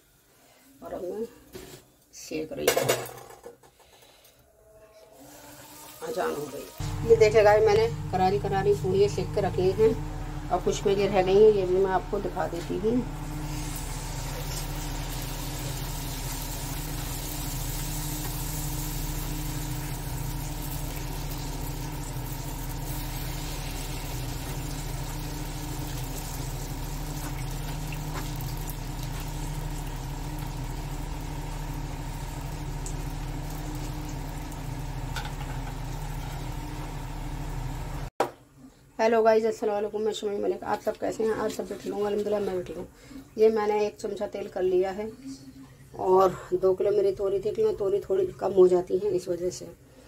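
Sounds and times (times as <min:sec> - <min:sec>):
low mechanical hum: 0:04.3 - 0:50.0
food sizzling in hot oil: 0:05.2 - 0:07.2, 0:13.1 - 0:37.7.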